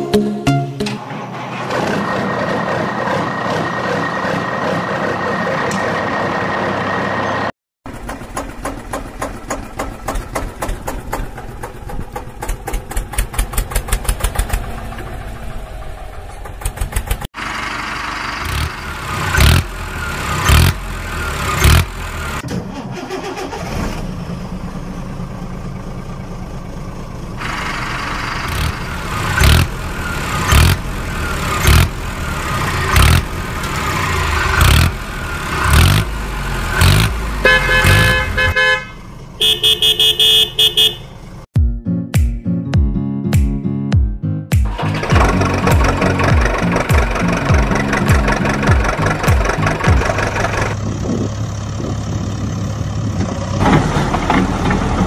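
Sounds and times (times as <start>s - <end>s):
engine cranking and catching: 0.8s - 6.5s, 7.8s - 39.5s, 44.6s - 55.0s
engine running: 0.8s - 41.5s, 44.6s - 55.0s
engine revving: 7.9s - 24.6s, 27.4s - 41.4s, 44.7s - 55.0s.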